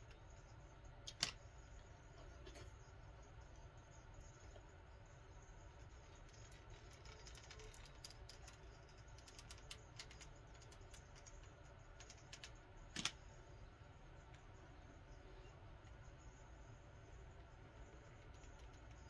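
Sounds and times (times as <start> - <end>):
low room hum: 0.0 - 19.0
spring clicking and ticking: 6.2 - 13.2.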